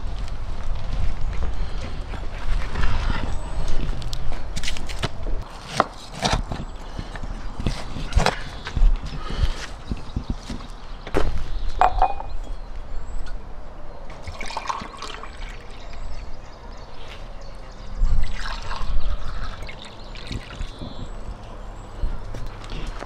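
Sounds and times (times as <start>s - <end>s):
liquid pouring into glasses: 14.3s - 15.9s, 18.2s - 20.6s.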